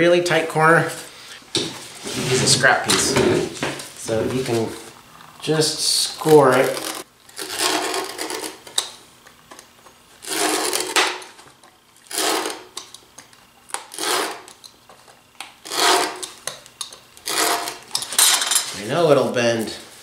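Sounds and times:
utility knife scoring plywood: 6.1 - 8.9, 10.2 - 11.4, 12.0 - 12.9, 13.8 - 14.6, 15.5 - 17.9.

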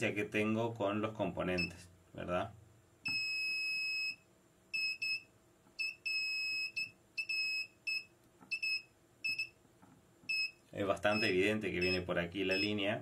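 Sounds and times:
high-pitched beeping: 11.1 - 12.8.

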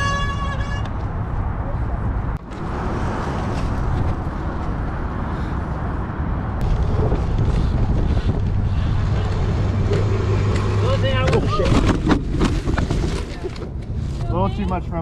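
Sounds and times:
wind buffeting microphone: 0.9 - 14.0
bike tyres rolling on dirt: 6.6 - 13.4.

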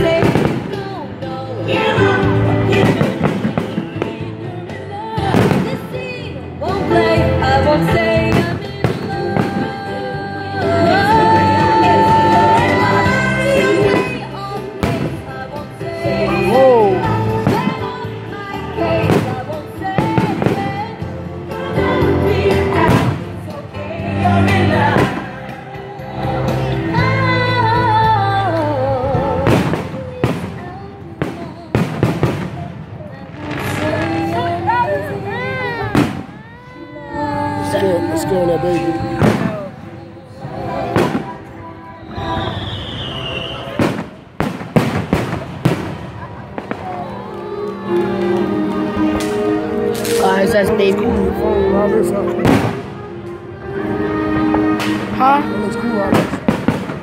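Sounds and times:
fireworks bangs: 0.0 - 1.0, 2.7 - 4.3, 5.2 - 6.2, 8.0 - 10.0, 18.8 - 21.0, 22.7 - 23.6, 29.4 - 36.6, 39.1 - 39.8, 40.8 - 41.5, 42.1 - 47.3, 52.4 - 53.3, 55.9 - 57.0
song with singing voice: 0.0 - 44.9, 45.6 - 57.0.

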